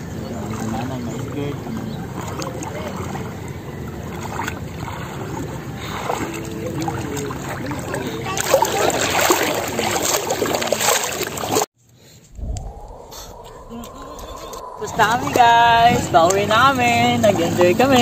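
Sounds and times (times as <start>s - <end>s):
water sloshing around legs: 0.0s - 11.7s
wind rumbling on microphone: 12.2s - 17.9s.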